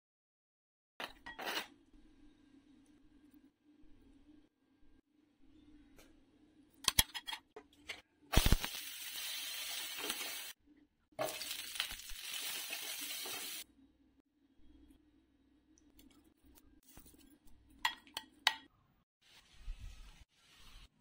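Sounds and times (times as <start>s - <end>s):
vegetables sizzling in oil: 8.3s - 10.6s, 11.2s - 13.6s.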